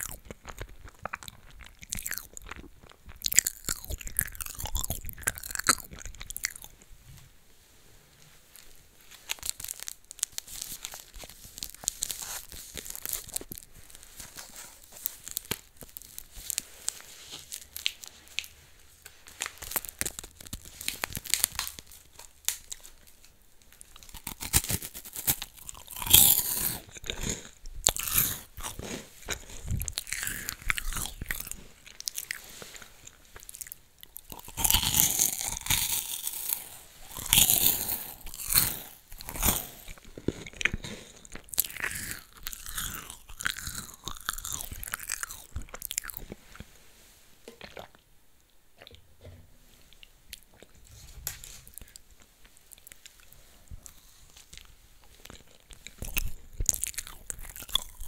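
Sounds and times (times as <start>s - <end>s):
person chewing crunchy snack: 0.0s - 6.8s, 9.1s - 23.0s, 23.7s - 46.7s, 47.5s - 48.0s, 50.3s - 58.0s.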